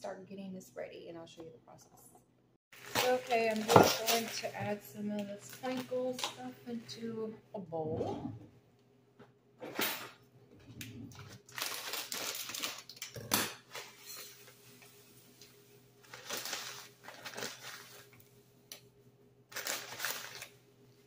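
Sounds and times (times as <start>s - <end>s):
plastic bag crinkling: 2.8s - 4.6s, 11.2s - 13.1s, 16.0s - 18.2s, 19.5s - 20.6s.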